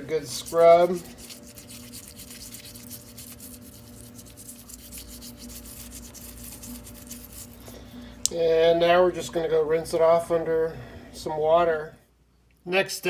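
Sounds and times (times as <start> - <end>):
brush scrubbing metal toy: 0.0 - 7.7
faint steady hum: 0.0 - 13.0.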